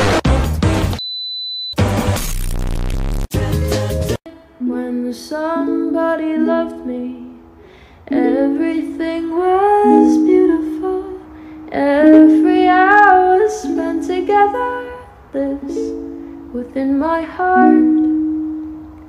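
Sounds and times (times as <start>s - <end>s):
woman singing: 3.4s - 7.5s, 8.1s - 18.6s
plucked strings: 8.1s - 14.8s, 17.5s - 19.0s.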